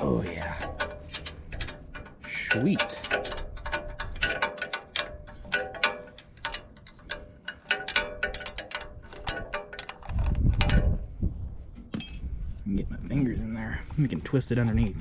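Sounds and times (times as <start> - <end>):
ratchet wrench clicking: 0.3 - 10.8.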